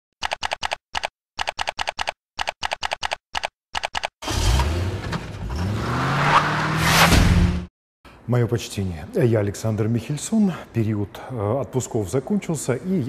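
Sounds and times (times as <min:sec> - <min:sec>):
keyboard typing: 0:00.2 - 0:04.2.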